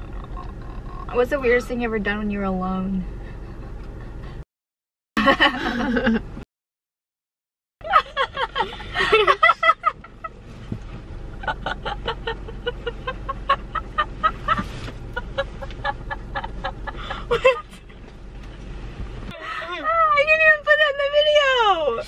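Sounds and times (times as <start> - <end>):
women laughing: 5.2 - 6.2, 7.8 - 10.4, 11.4 - 17.9.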